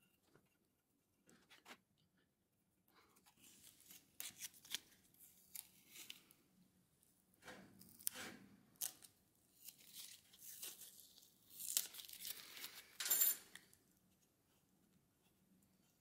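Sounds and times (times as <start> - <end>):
masking tape ripping and crinkling: 8.8 - 12.9.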